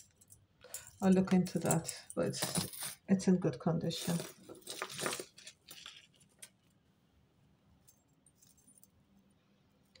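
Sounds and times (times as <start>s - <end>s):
metal chains jingling: 0.0s - 3.0s.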